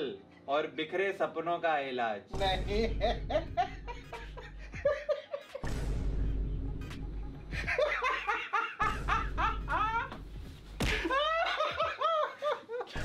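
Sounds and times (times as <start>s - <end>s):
men laughing hard: 2.8s - 5.7s, 7.2s - 13.0s.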